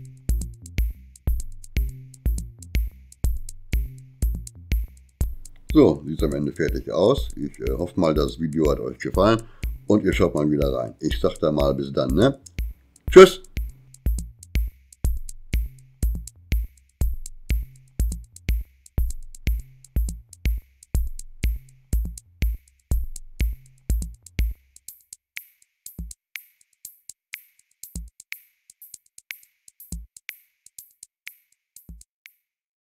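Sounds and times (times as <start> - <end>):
background music with drum-machine beat: 0.0 - 32.4.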